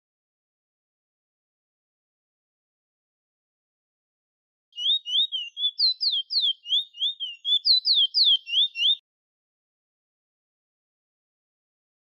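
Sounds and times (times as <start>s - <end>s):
bird singing whistled notes: 4.8s - 9.0s.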